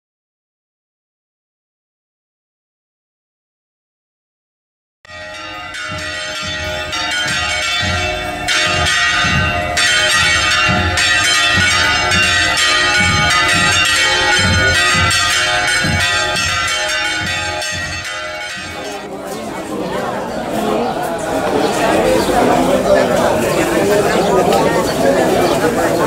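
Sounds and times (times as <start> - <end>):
church bells pealing: 5.1 - 26.0
low regular beat: 5.2 - 19.1.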